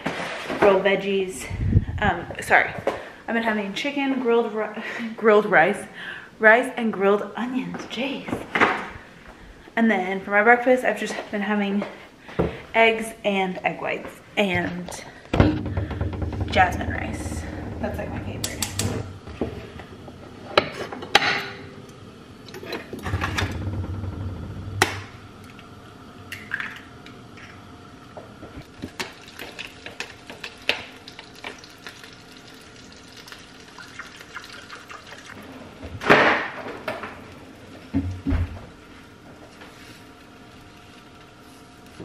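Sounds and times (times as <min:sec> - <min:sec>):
utensils clicking and knocking: 0:15.4 - 0:19.1.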